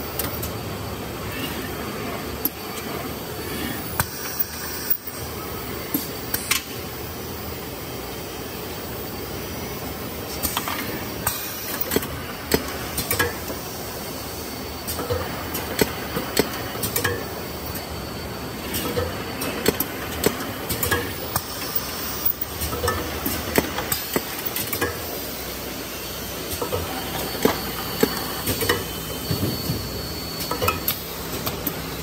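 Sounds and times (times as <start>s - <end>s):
machine humming: 8.8s - 32.0s.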